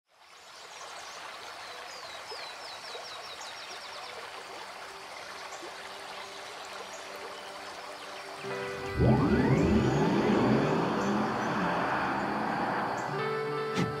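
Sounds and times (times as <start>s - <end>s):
stream running over stones: 0.1s - 14.0s
faint sustained music notes: 4.8s - 14.0s.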